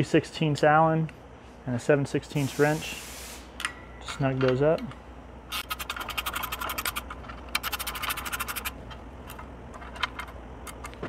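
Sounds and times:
ratcheting wrench clicking: 5.5 - 9.4.

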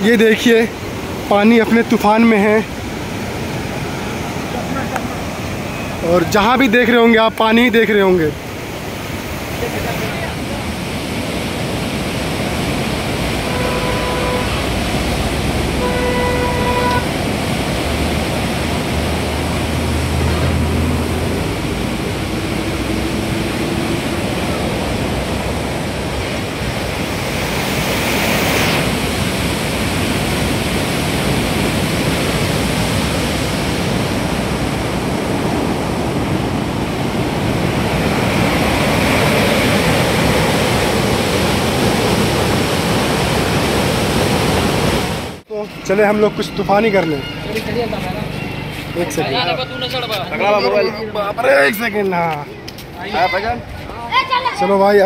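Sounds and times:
water rushing: 0.0 - 55.0
vehicle horn honks: 13.4 - 14.7, 15.8 - 17.1
vehicle passing: 13.6 - 26.0.

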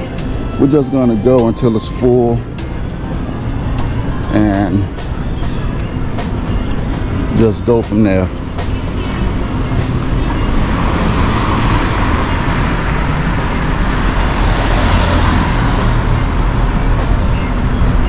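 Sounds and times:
road traffic rumble: 0.0 - 18.0
vehicle passing by: 8.3 - 18.0.

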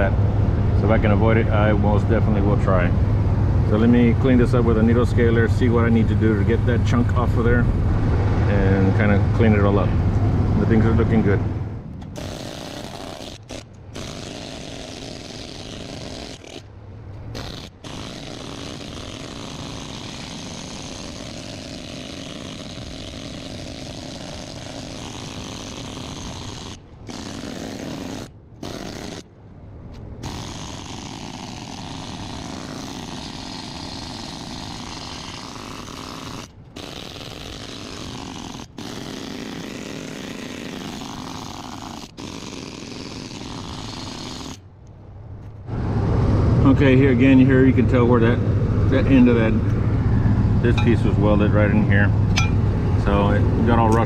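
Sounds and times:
needle scaler chipping steel: 12.0 - 16.7, 17.3 - 29.3, 30.2 - 44.6, 50.7 - 51.2, 52.3 - 52.6.

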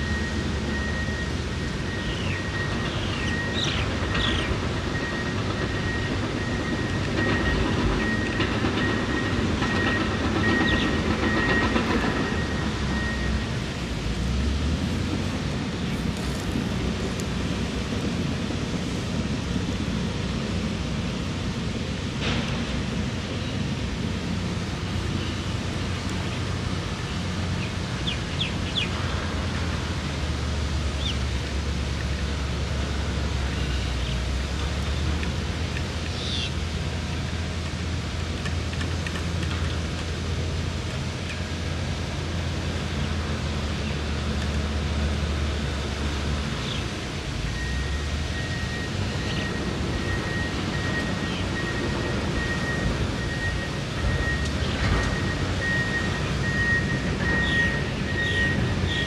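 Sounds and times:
bird chirps: 57.3 - 59.0.

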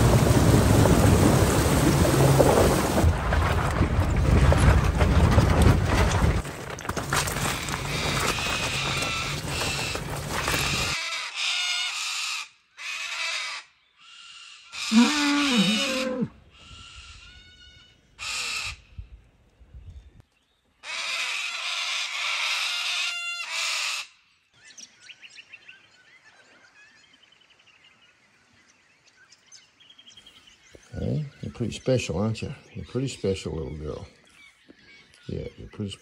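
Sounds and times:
faint birdsong: 7.5 - 36.0
loud low drawn-out animal call: 12.8 - 18.9
birds chirping: 14.7 - 18.3, 24.5 - 36.0.

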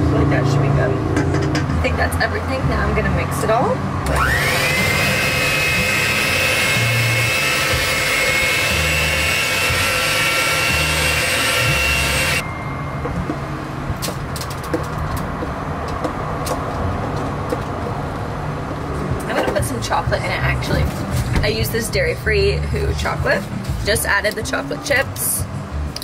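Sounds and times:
electric hand mixer whining: 4.1 - 12.4.

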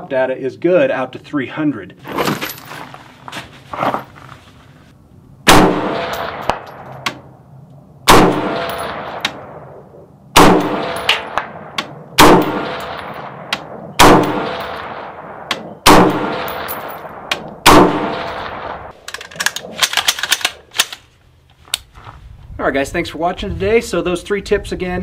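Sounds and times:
rifle shots echoing: 5.4 - 7.2, 8.1 - 19.0.

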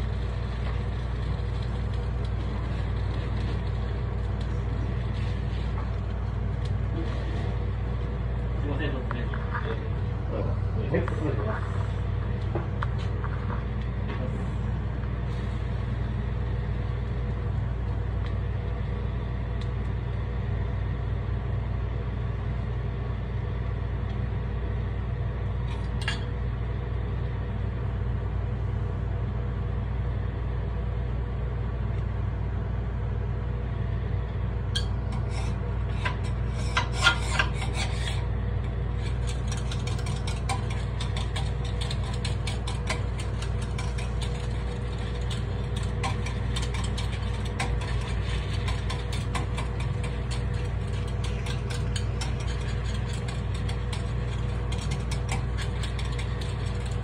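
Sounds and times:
range hood humming: 0.0 - 57.0
metal picks clicking in pan: 39.0 - 57.0.

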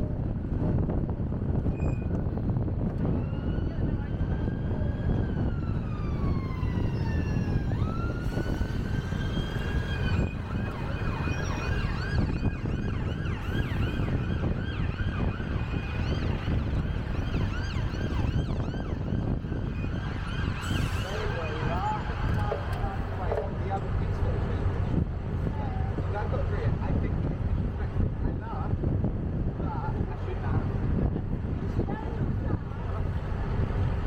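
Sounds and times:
low traffic rumble: 0.0 - 34.0
wind noise: 0.0 - 34.0
emergency vehicle siren: 2.0 - 24.3.

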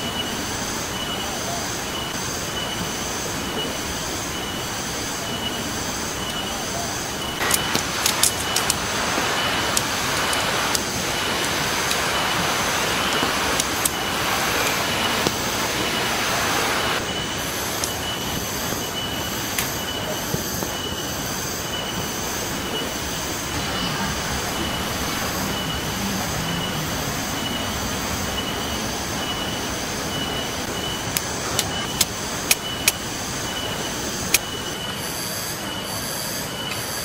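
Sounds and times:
steady high whine: 0.0 - 37.0
tent poles clicking together: 7.4 - 8.8
rocky stream rushing: 7.4 - 17.0, 23.5 - 32.4.

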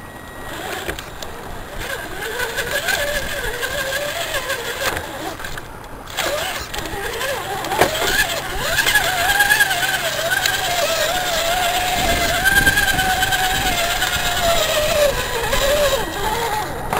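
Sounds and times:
electric motor and gears whining: 0.0 - 16.9.

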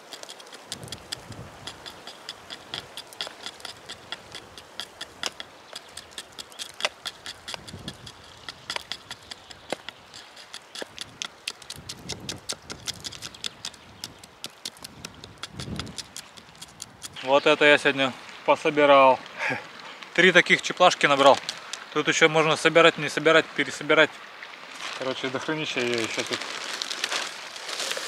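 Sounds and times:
knife scraping bark: 0.0 - 17.3.

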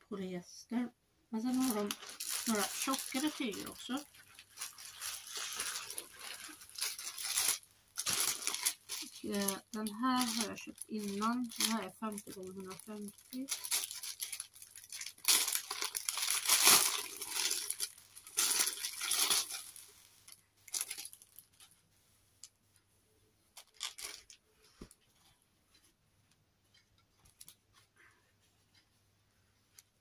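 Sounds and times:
fabric rustling: 1.4 - 22.5
plastic bag tearing and crinkling: 1.5 - 21.6, 23.6 - 24.4.

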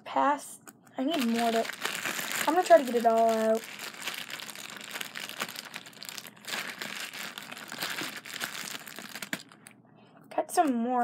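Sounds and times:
bag crinkling and rustling: 1.1 - 9.7.

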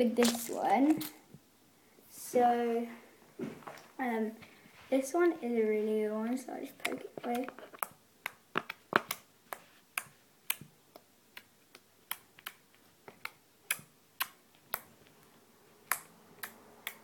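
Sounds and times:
slime popping when poked: 0.2 - 1.2.

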